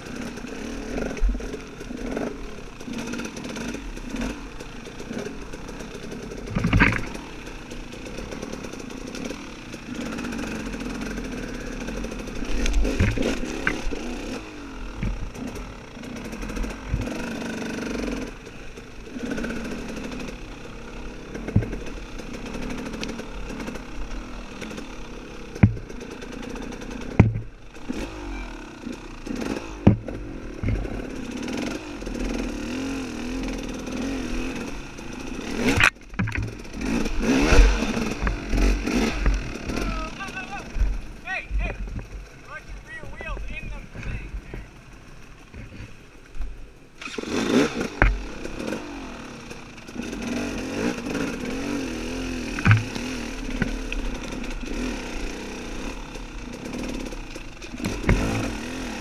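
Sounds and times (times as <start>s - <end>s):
dirt bike engine revving: 0.0s - 59.0s
sharp knocks: 25.6s - 25.9s, 27.1s - 27.5s, 35.6s - 36.6s, 52.6s - 53.8s, 57.8s - 58.5s.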